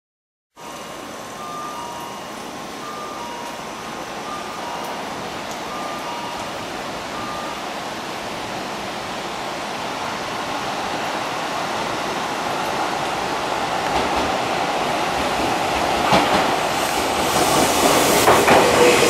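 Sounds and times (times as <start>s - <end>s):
two-tone electronic warning chime: 0.6s - 7.8s
train rumble and hiss: 0.6s - 19.0s.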